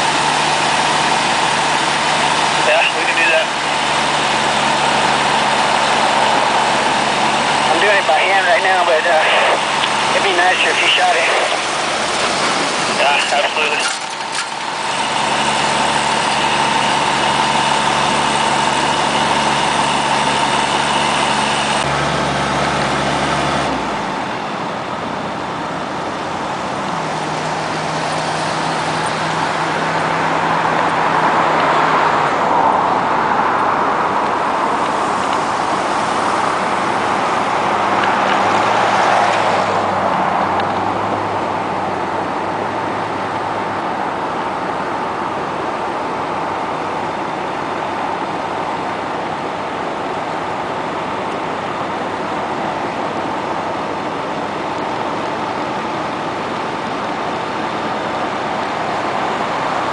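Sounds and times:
constant rushing noise: 0:00.0 - 0:21.9
fire truck engines running: 0:00.0 - 0:59.9.

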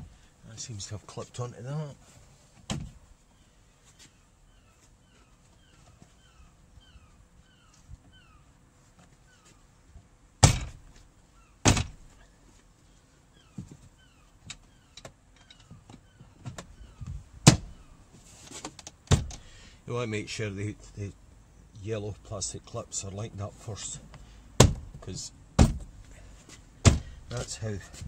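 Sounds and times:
door panel knocked by hand: 0:10.4 - 0:10.8, 0:11.7 - 0:12.0, 0:24.6 - 0:24.9, 0:25.6 - 0:25.8, 0:26.8 - 0:27.1.

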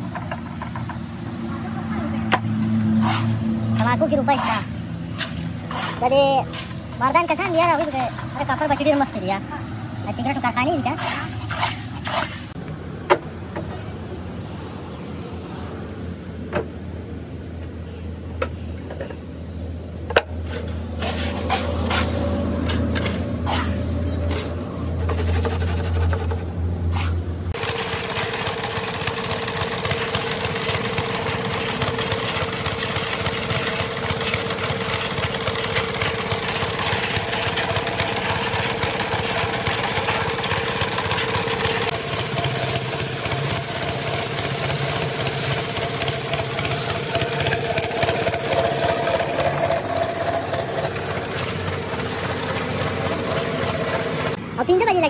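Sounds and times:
concrete mixer engine drone: 0:00.0 - 0:55.0
scoop scraping on steel mould: 0:04.4 - 0:06.8, 0:20.5 - 0:27.2.

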